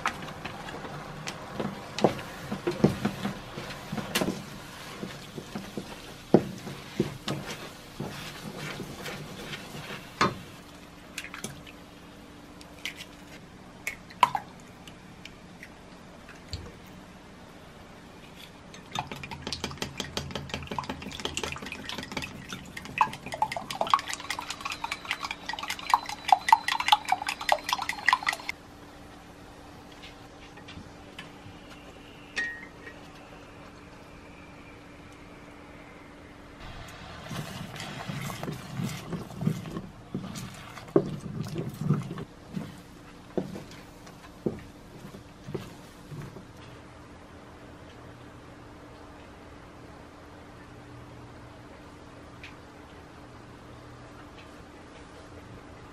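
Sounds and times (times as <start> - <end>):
whisk clinking against glass: 22.9 - 28.5.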